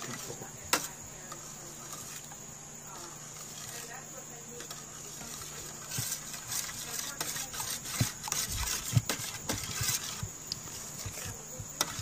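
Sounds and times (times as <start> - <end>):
spoon scraping and knocking metal bowl: 4.6 - 12.0.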